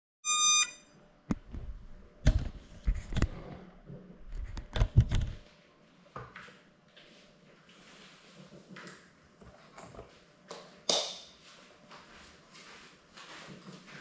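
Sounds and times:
camera electronic beep: 0.2s - 0.8s.

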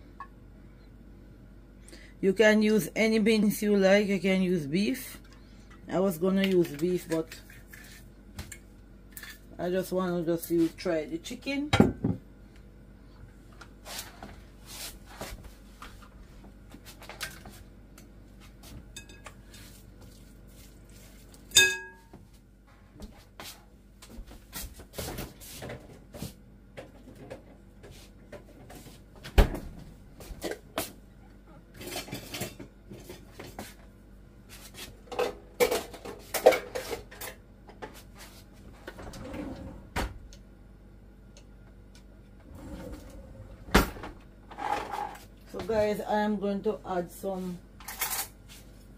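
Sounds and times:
ringing clink: 21.6s - 22.0s.

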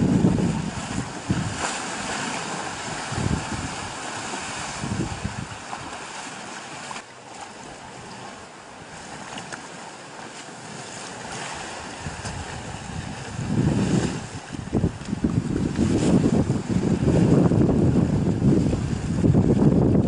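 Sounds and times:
wind buffeting microphone: 0.0s - 6.0s, 11.2s - 20.0s
water sloshing and splashing: 0.0s - 20.0s.

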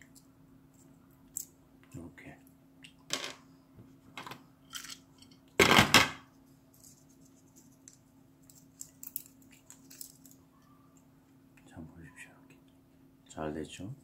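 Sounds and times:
shell pieces crackling: 7.8s - 10.4s.

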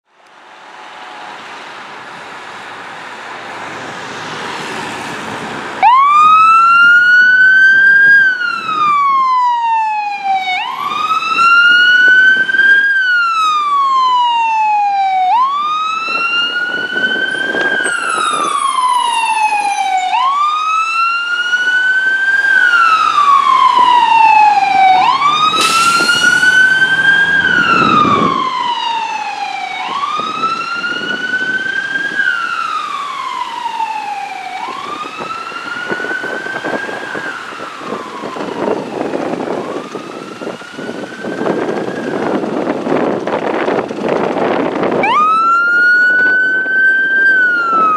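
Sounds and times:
fire truck siren wailing: 3.7s - 47.9s
brief hiss: 25.6s - 26.6s.

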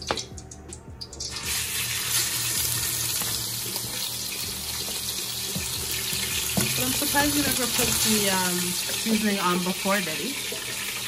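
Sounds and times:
meat sizzling in oil: 1.0s - 11.0s.

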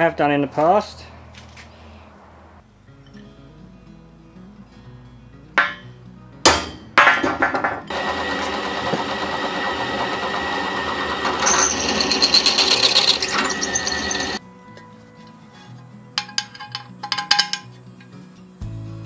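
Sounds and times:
sharp metal clanks: 5.6s - 5.9s, 6.5s - 7.8s, 16.2s - 17.8s
drill press running: 7.9s - 14.4s
drill bit chattering on metal: 9.0s - 14.4s.

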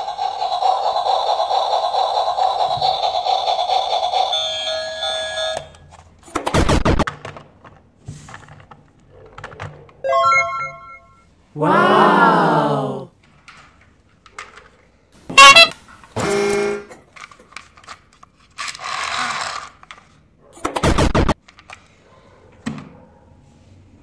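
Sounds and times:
hiss: 0.0s - 4.3s
rapid rattle: 0.0s - 5.1s
horn-like tone: 15.3s - 16.9s
loud honking tone: 15.3s - 16.9s.

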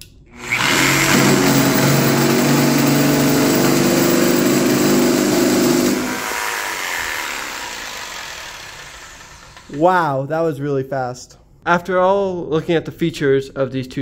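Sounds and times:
jigsaw sawing through wood: 0.4s - 9.8s.

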